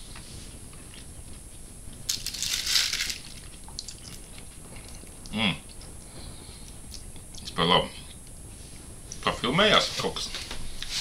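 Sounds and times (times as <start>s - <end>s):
man vocal sound: 5.3s - 5.8s.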